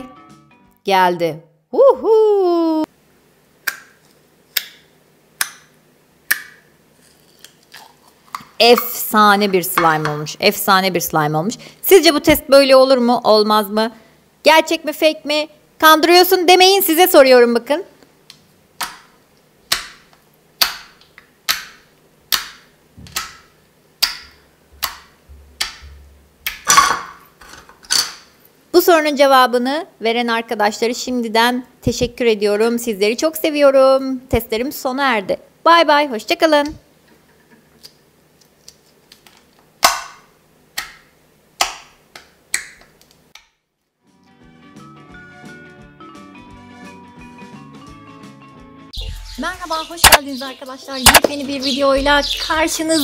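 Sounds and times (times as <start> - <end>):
sharp slime pops: 39.8 - 41.0.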